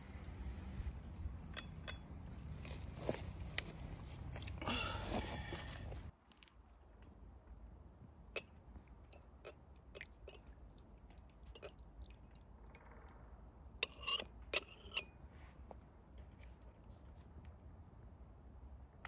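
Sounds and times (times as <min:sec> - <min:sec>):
glass ringing on saucer: 0:01.5 - 0:02.2
tea glasses clinking: 0:01.5 - 0:02.2, 0:11.5 - 0:11.8.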